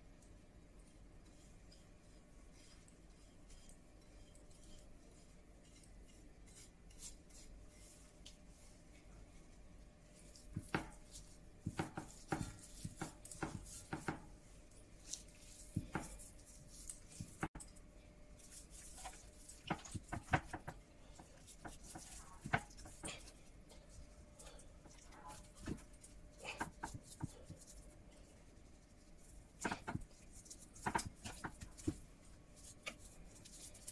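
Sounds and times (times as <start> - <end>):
hands patting raw chicken: 10.4 - 17.6, 18.6 - 23.3, 29.6 - 33.9.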